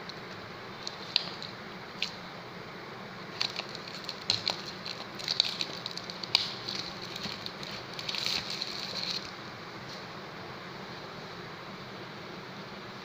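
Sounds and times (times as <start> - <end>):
packaging rustling and crackling: 0.8 - 2.3, 3.3 - 9.4.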